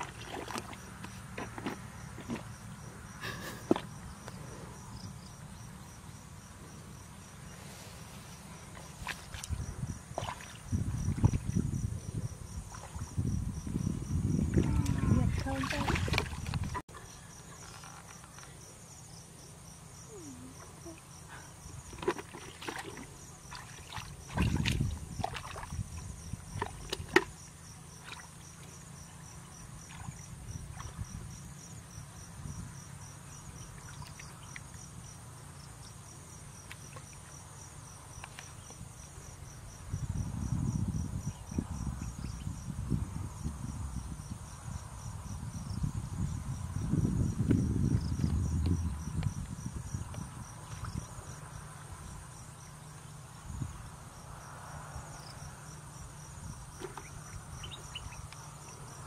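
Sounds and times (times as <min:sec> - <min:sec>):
hands splashing in muddy water: 0:00.0 - 0:02.5, 0:14.6 - 0:16.8, 0:21.9 - 0:25.8
churning slosh through mud: 0:00.0 - 0:02.6, 0:08.7 - 0:11.5, 0:14.6 - 0:16.8, 0:21.9 - 0:27.3
insects trilling: 0:00.0 - 0:59.0.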